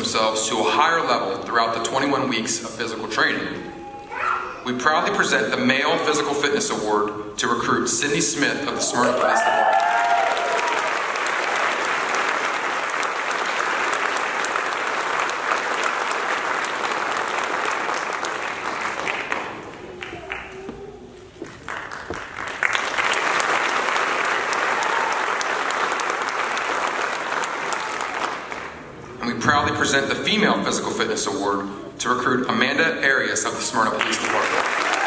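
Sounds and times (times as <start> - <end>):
audience applauding: 9.0 - 28.9, 34.0 - 35.0.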